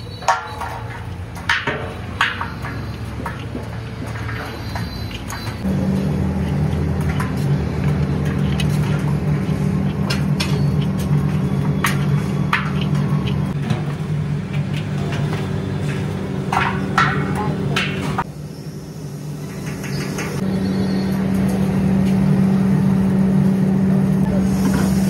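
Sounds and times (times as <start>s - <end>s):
ladle clinking on metal pots: 0.0s - 5.7s, 16.5s - 18.2s
low mechanical motor hum: 0.2s - 25.0s.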